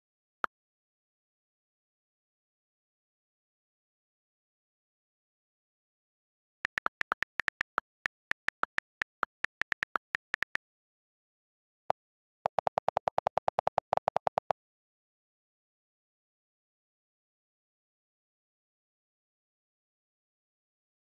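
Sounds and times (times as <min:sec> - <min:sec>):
on-screen keyboard clicks: 0:06.6 - 0:10.6, 0:12.4 - 0:14.6.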